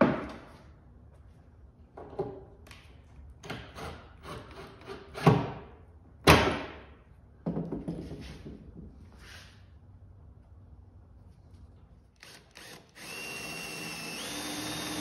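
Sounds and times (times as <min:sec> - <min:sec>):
cordless drill driving screws: 0:12.2 - 0:15.0.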